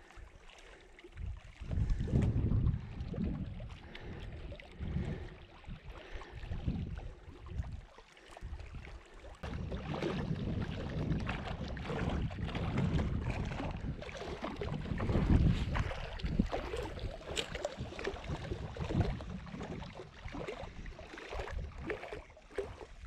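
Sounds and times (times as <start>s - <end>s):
choppy lake water: 0.0s - 23.0s
wind gusting against microphone: 1.6s - 4.2s, 9.4s - 17.2s.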